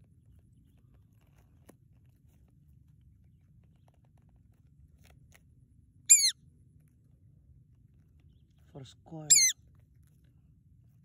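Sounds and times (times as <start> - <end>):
hawk high-pitched call: 6.1 - 6.4, 9.3 - 9.6.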